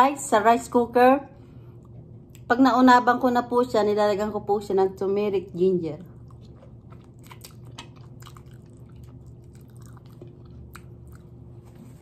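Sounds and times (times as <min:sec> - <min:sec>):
low steady hum: 0:00.0 - 0:12.0
quiet chewing: 0:01.6 - 0:02.5, 0:06.0 - 0:12.0
wet mouth clicks and smacks: 0:06.2 - 0:11.4.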